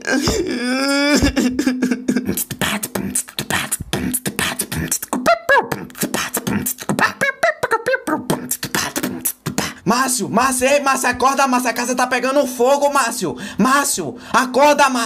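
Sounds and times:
rising vocal cry: 0:00.0 - 0:01.3
person beatboxing: 0:00.2 - 0:11.3
short sung vocal sounds: 0:02.2 - 0:09.9.

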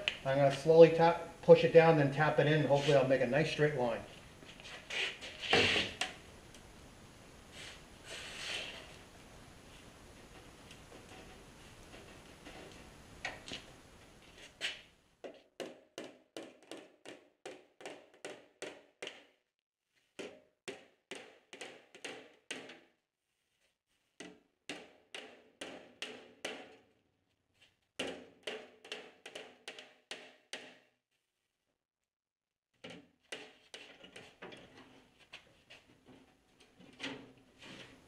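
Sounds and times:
hammer tapping sheet metal: 0:24.7 - 0:26.8.

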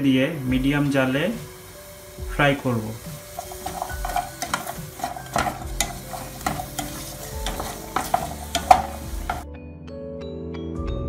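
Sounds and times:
butter sizzling: 0:00.1 - 0:09.4
spatula scraping a saucepan: 0:03.0 - 0:09.4.

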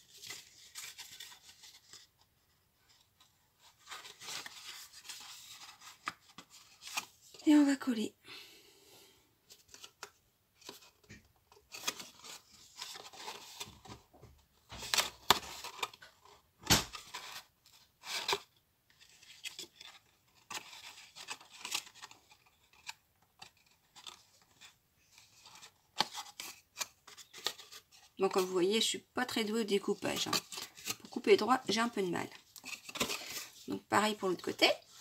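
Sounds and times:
stiff card rustling and scraping: 0:00.0 - 0:07.3, 0:30.0 - 0:35.0.

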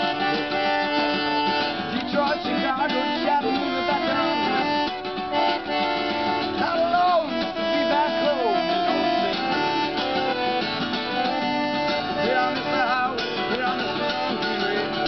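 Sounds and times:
person singing: 0:00.0 - 0:05.8
accordion chords: 0:00.0 - 0:15.0
strummed acoustic guitars: 0:00.0 - 0:15.0.

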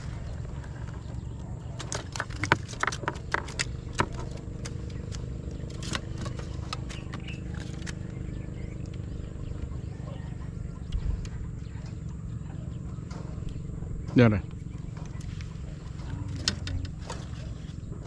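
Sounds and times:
boat engine humming: 0:00.0 - 0:18.0
sharp knocks and clicks: 0:01.7 - 0:08.0, 0:12.8 - 0:17.4.

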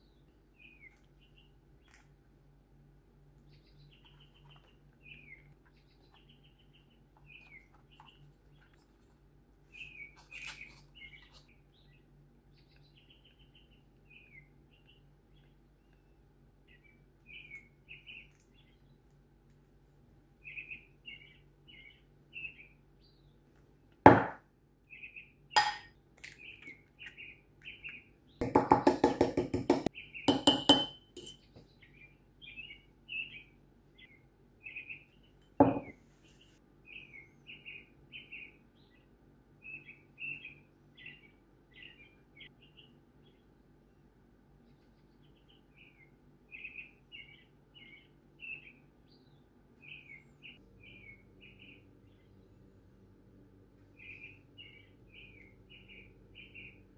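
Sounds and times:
small birds chirping: 0:00.0 - 0:56.9
fork clinking ceramic cup: 0:25.6 - 0:25.9, 0:30.3 - 0:31.4
fork beating eggs in cup: 0:28.4 - 0:31.4.

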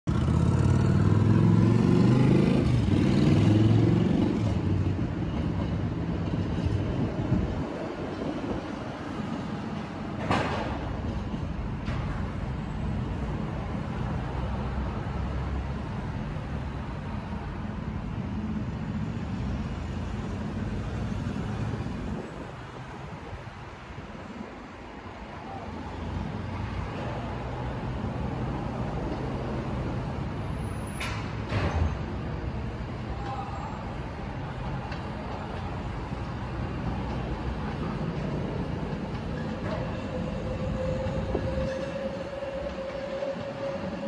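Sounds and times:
vehicle engine accelerating: 0:00.1 - 0:04.8
distant road traffic rumble: 0:00.1 - 0:44.0.

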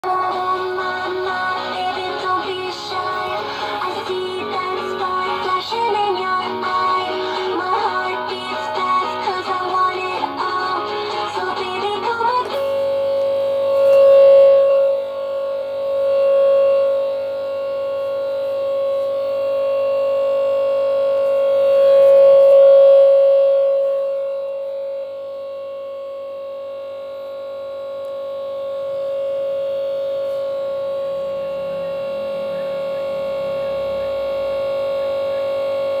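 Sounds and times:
pop song from laptop speakers: 0:00.0 - 0:14.0
steady droning buzz: 0:00.0 - 0:36.0.

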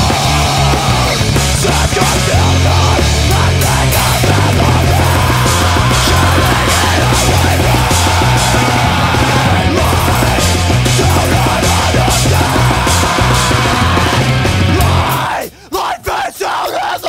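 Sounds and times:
hard rock song: 0:00.0 - 0:17.0.

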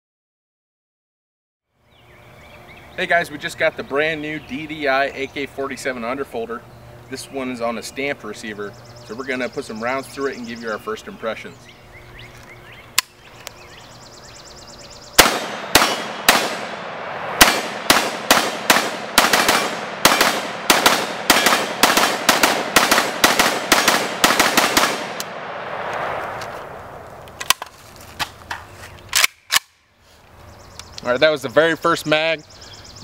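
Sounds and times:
rifle gunshots: 0:15.2 - 0:27.6
light metallic clicks of rifle: 0:27.3 - 0:29.8.

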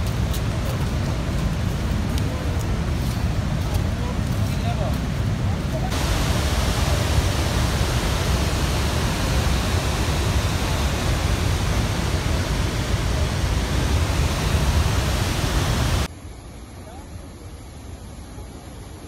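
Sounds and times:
waterfall rushing: 0:05.9 - 0:16.1.

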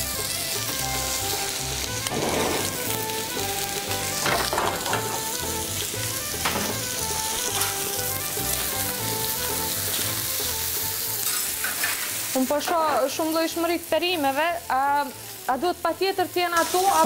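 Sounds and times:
food sizzling on a griddle: 0:00.0 - 0:17.0.

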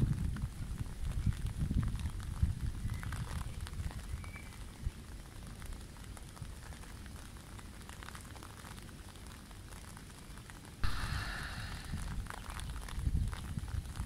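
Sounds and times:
wind buffeting microphone: 0:00.0 - 0:04.9, 0:10.8 - 0:14.0.

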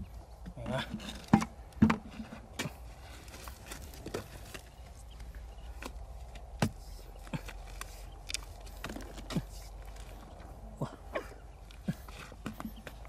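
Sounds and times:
digging tool thudding into dry mud: 0:06.6 - 0:06.8.

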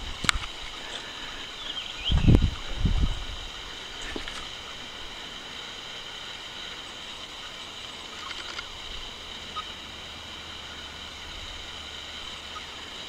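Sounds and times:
high-pitched insect chorus: 0:00.0 - 0:13.0
faint clicks: 0:08.1 - 0:08.7.

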